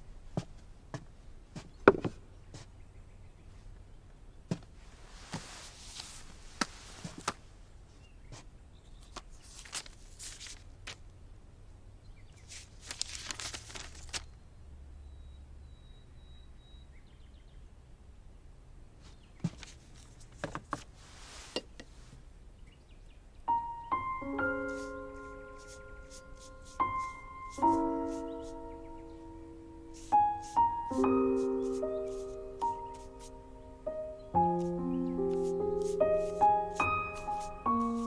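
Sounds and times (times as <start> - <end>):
paper rustling: 4.8 - 7.5, 9.0 - 11.0, 12.4 - 14.3, 19.4 - 21.6, 24.4 - 28.7, 29.9 - 33.4, 34.4 - 38.0.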